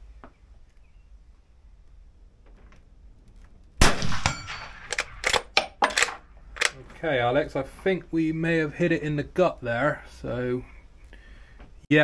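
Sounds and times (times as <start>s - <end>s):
rifle shot: 3.8s - 6.7s.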